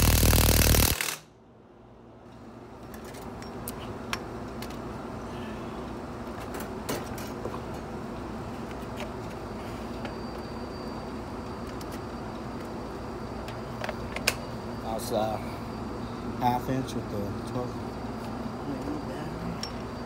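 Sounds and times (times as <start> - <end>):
low background noise: 1.0 - 20.0
light metallic clinks: 19.6 - 20.0.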